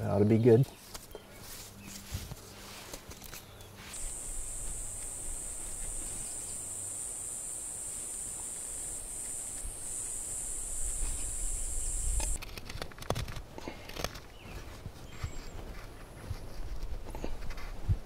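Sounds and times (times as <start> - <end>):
insect buzzing: 3.9 - 12.4.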